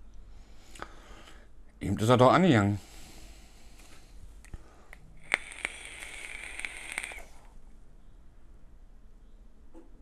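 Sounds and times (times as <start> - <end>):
e-cigarette high whistle with crackling: 5.2 - 7.5.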